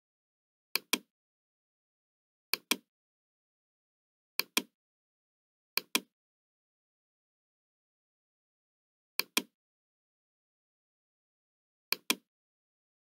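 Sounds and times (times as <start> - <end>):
computer mouse clicking: 2.6 - 2.8, 4.4 - 4.7, 5.8 - 6.1, 9.2 - 9.5, 11.9 - 12.2.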